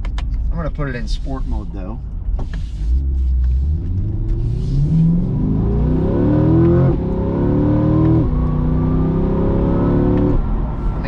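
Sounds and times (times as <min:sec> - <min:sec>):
car engine accelerating hard: 0:02.9 - 0:11.0.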